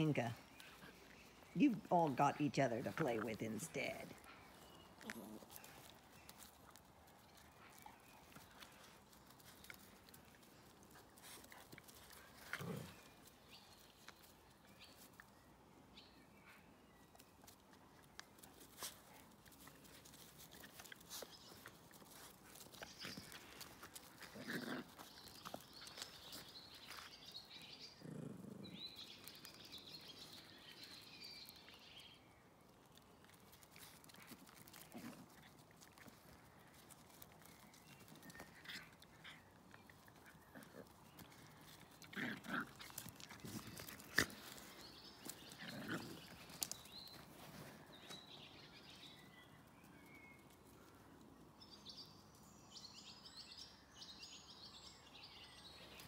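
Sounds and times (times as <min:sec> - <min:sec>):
dogs growling: 0:12.4 - 0:13.2, 0:23.0 - 0:26.1, 0:27.7 - 0:29.2, 0:38.6 - 0:46.8.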